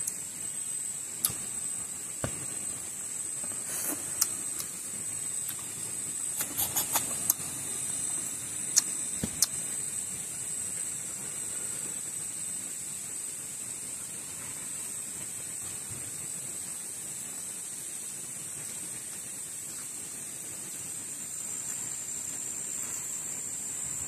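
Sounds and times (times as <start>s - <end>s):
high insect drone: 0.0s - 24.0s
mouth clicks and smacks: 3.8s - 4.8s, 5.4s - 5.7s, 6.4s - 7.4s, 8.7s - 9.6s.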